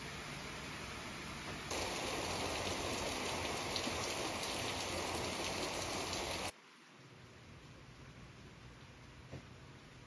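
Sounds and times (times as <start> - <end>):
steady rain hiss: 0.0 - 10.0.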